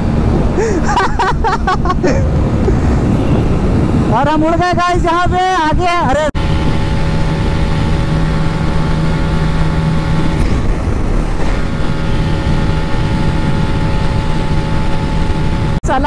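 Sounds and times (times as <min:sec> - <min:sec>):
wind noise: 0:00.0 - 0:16.0
motorcycle engine running fast: 0:02.2 - 0:04.2, 0:06.1 - 0:16.0.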